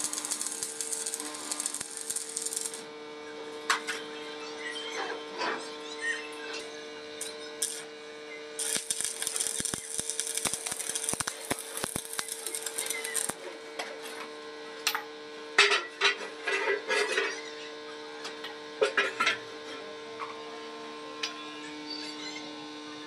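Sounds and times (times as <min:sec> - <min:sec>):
welding arc crackling: 0:00.0 - 0:02.9, 0:07.2 - 0:07.9, 0:08.6 - 0:13.4
electrical hum: 0:00.0 - 0:03.6, 0:06.8 - 0:13.7.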